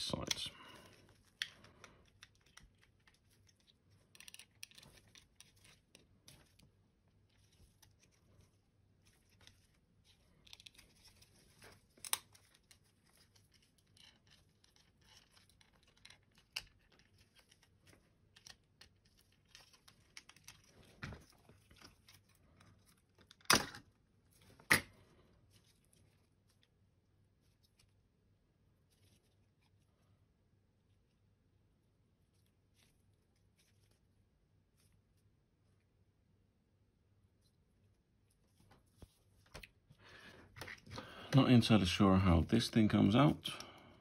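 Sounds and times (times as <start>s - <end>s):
small plastic clicks: 1.3s - 5.7s.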